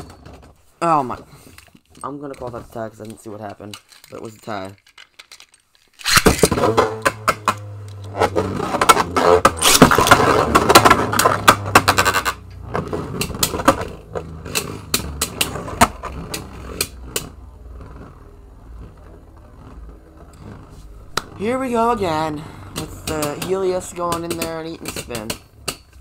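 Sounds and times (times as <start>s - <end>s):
spinning tops clacking together: 3.0s - 7.2s
spinning tops whirring: 5.9s - 17.4s.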